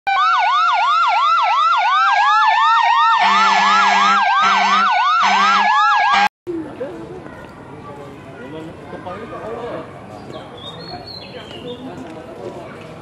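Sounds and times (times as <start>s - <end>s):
fire engine siren yelping: 0.1s - 6.3s
low horn blasts: 3.2s - 6.3s.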